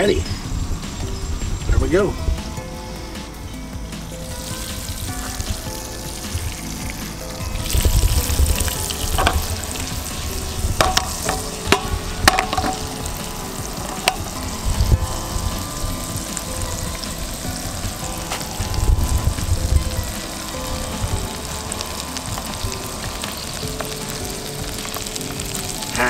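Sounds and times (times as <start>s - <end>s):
low rumbles: 0.0s - 26.0s
fish sizzling in a frying pan: 4.1s - 26.0s
oil spitting pops: 4.2s - 15.6s.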